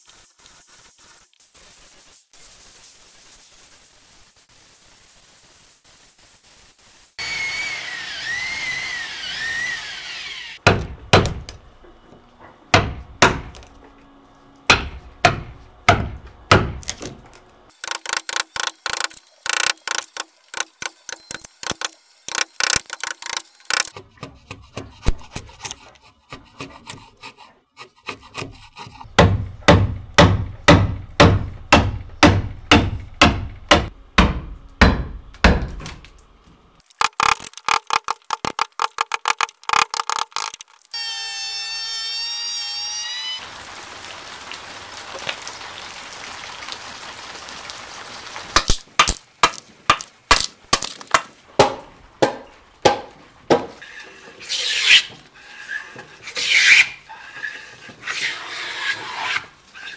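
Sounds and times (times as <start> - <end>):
hammering on wood: 10.6 - 11.6, 12.7 - 13.6, 14.7 - 16.9, 29.1 - 35.9, 49.0 - 53.8.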